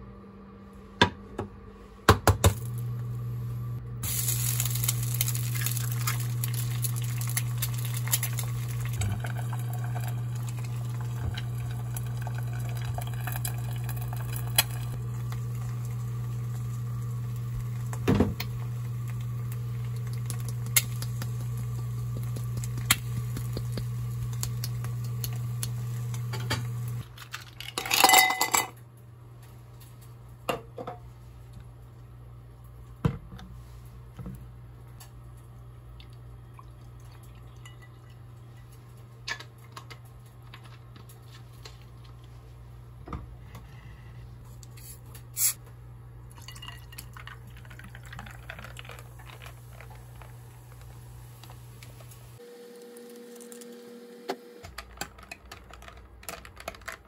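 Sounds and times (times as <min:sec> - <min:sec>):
steady low hum: 0:00.0 - 0:27.0
eggs sizzling and popping: 0:04.0 - 0:27.1, 0:46.4 - 0:52.4
ice cubes clinking into glass: 0:27.4 - 0:28.7.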